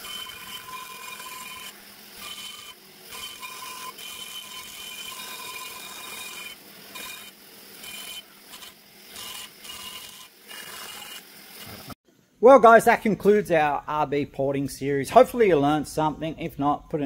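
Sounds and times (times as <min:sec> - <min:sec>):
die grinder whining and grinding: 0:00.0 - 0:12.0.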